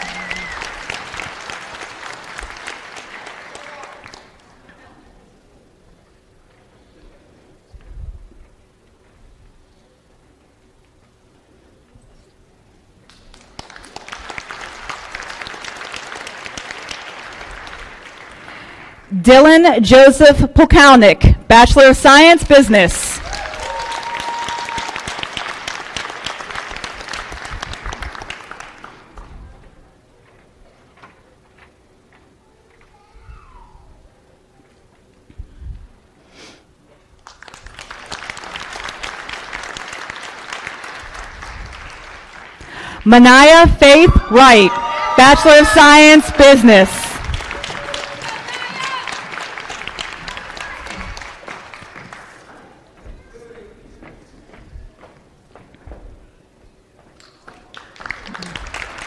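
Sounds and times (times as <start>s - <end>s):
audience applauding: 0.0s - 4.6s, 13.1s - 19.1s, 23.2s - 29.4s, 37.2s - 43.0s, 44.3s - 52.8s, 57.2s - 59.0s.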